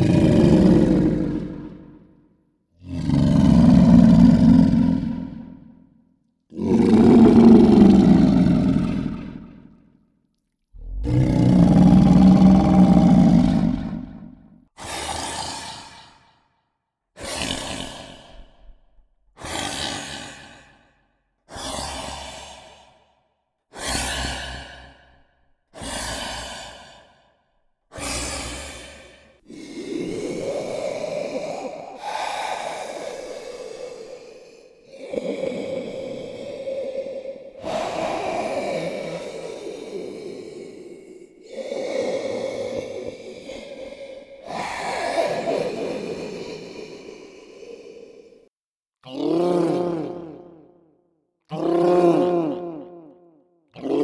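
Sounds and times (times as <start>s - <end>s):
low creature growl: 0.0s - 5.8s, 6.5s - 9.9s, 10.8s - 16.4s, 17.2s - 18.8s, 27.9s - 48.5s, 49.1s - 50.9s
breathy exhale: 11.0s - 16.6s, 19.4s - 48.5s.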